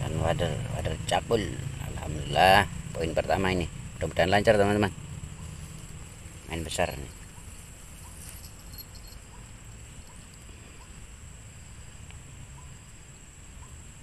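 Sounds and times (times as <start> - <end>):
low steady rumble: 0.0 - 14.0.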